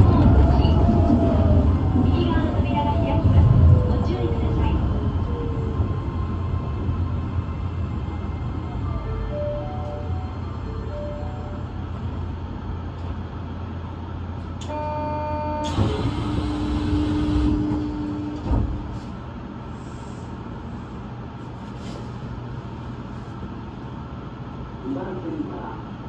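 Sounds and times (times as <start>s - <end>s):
low hum of train equipment: 0.0s - 26.0s.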